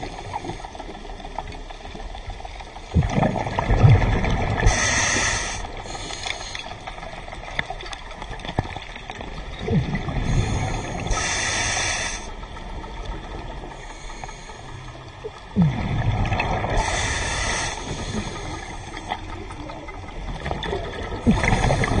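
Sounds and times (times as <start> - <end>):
bubbling exhale underwater: 2.9 - 5.6, 9.6 - 12.3, 15.5 - 22.0
regulator hissing inhale: 4.6 - 7.1, 10.2 - 12.4, 13.7 - 15.1, 16.8 - 19.4, 21.3 - 22.0.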